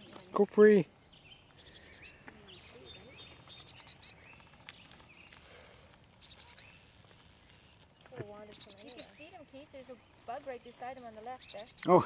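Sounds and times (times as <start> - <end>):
chickadee calling: 0.0 - 12.0.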